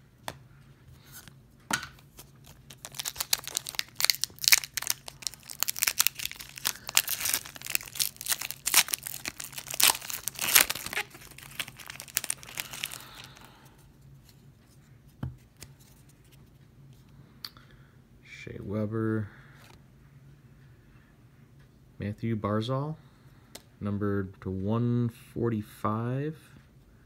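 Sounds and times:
foil wrapper tearing and crinkling: 2.2s - 13.5s.

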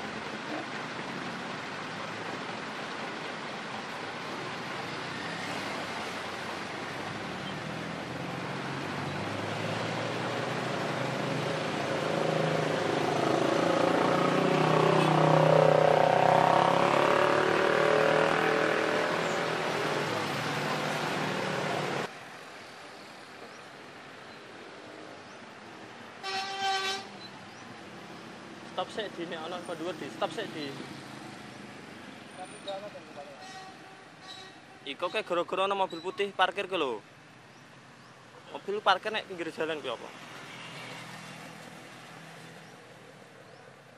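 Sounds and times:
motorcycle and vehicle engines: 0.0s - 26.0s
traffic hum: 0.0s - 43.9s.

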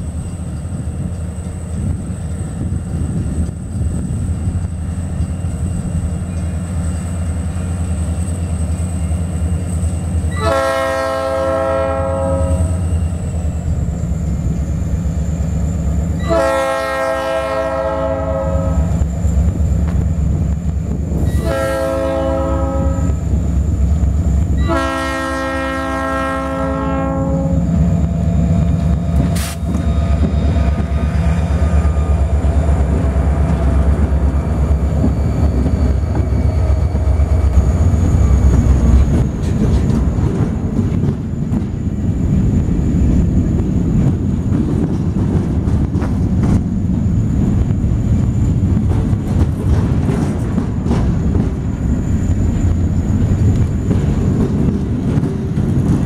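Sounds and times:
locomotive engine rumble: 0.0s - 56.0s
locomotive air horn blasts: 10.3s - 12.8s, 16.2s - 19.0s, 21.3s - 23.2s, 24.6s - 27.7s.

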